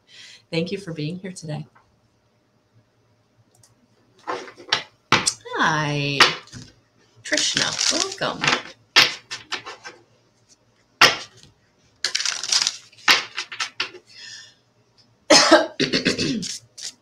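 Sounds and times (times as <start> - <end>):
woman coughing: 15.3 - 16.6.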